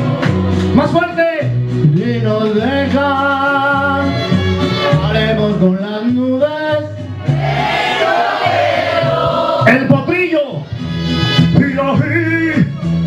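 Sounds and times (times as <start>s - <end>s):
backing music: 0.0s - 13.0s
man singing into microphone: 1.8s - 4.2s, 4.8s - 7.0s.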